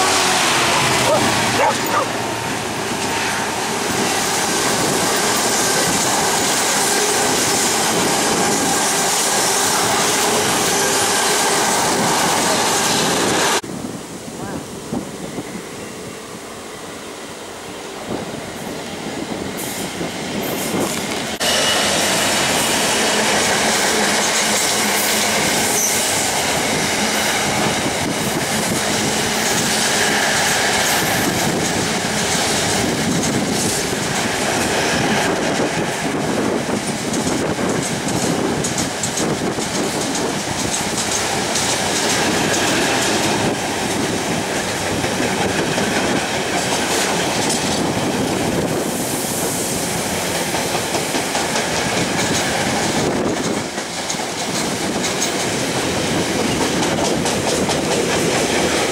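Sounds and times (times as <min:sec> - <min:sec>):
wagons rumbling: 0:00.0 - 0:12.9
diesel locomotive passing: 0:00.0 - 0:58.9
wheels clattering over rail joints: 0:35.4 - 0:48.8.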